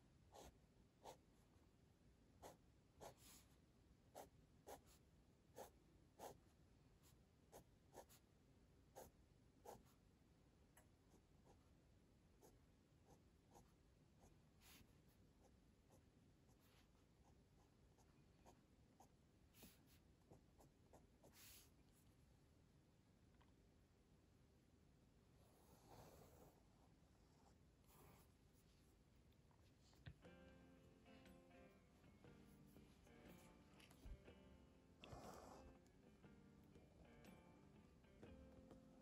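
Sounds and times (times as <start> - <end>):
pen scratching on paper: 0.3 - 1.2, 2.4 - 3.4, 4.2 - 4.9, 9.0 - 9.9.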